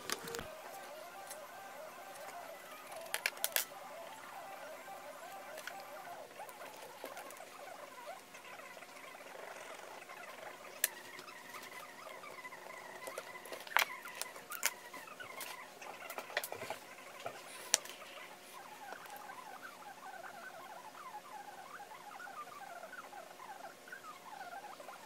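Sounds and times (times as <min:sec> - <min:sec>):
hands scratching and rustling: 0:00.0 - 0:01.5.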